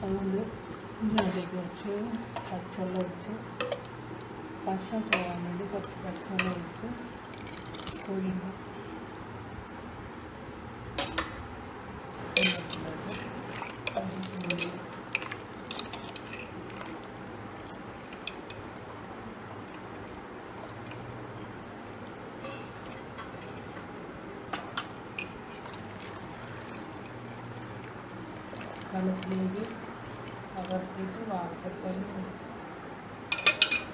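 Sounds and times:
strainer scraping metal pot: 22.4s - 23.9s.

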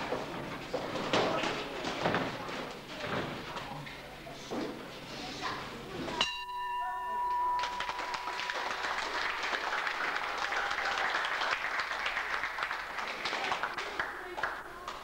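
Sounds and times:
boxing ring bell ringing: 6.2s - 8.6s
audience applauding: 7.6s - 15.0s.

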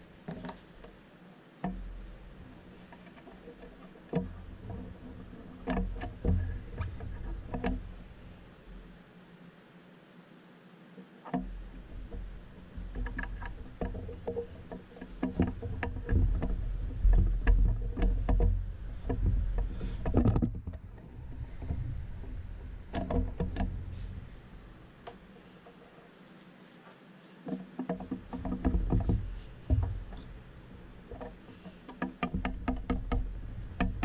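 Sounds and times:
low rumble: 15.5s - 25.0s.

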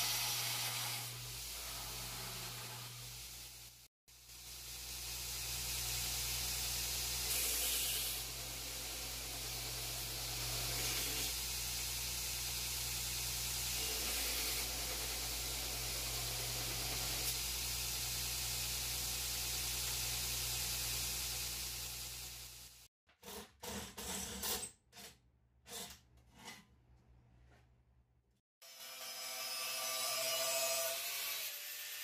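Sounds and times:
steel grinding hiss: 0.0s - 22.9s.

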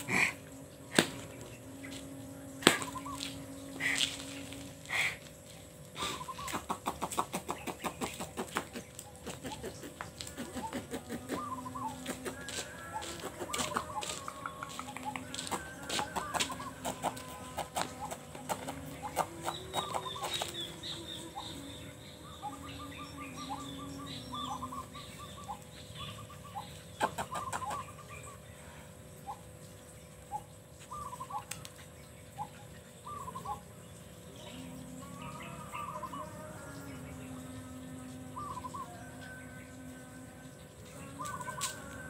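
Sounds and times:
birds chirping and calling: 0.0s - 42.0s
faint steady hum: 0.0s - 42.0s
chicken clucking: 6.1s - 20.8s, 27.0s - 27.9s.

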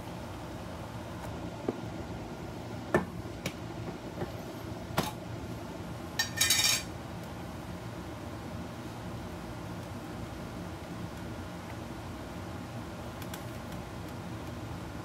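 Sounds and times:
kitchenware clinking: 6.2s - 6.9s.

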